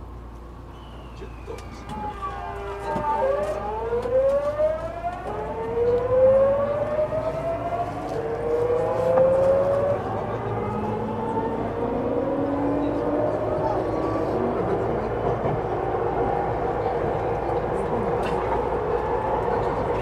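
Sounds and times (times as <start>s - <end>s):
electric train inverter whine: 0.0s - 20.0s
train running noise: 0.0s - 20.0s.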